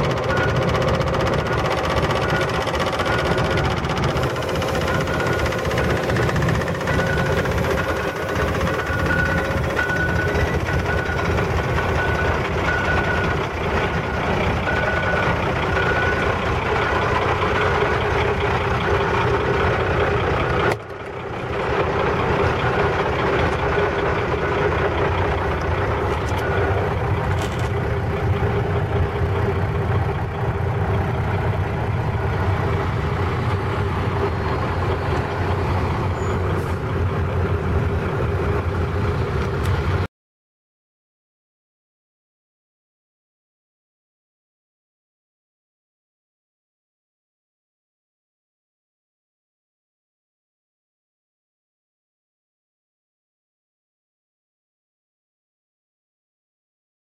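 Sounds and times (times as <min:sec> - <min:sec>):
fire truck engine running: 0:00.0 - 0:40.1.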